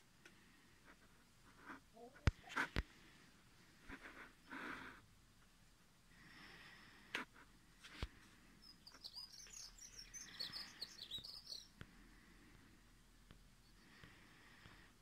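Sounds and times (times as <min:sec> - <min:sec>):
bird singing chirps and whistles: 0:08.6 - 0:11.7.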